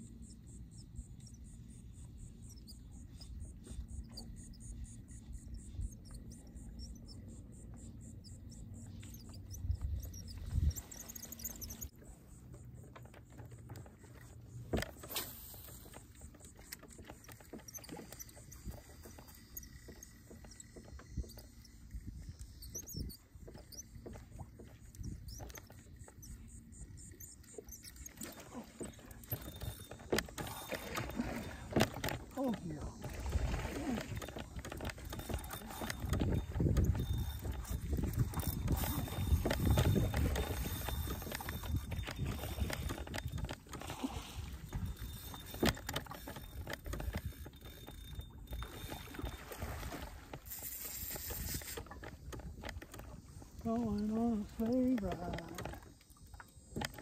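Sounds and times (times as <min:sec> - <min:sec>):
low wind: 0:00.0 - 0:57.0
water noise: 0:00.0 - 0:57.0
small birds chirping: 0:00.5 - 0:11.9
wind rumble on microphone: 0:09.3 - 0:11.9, 0:24.4 - 0:25.6, 0:32.6 - 0:45.6.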